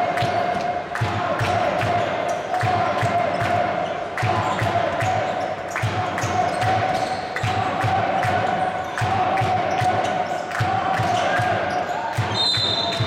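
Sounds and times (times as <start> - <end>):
arena hall noise: 0.0 - 13.0.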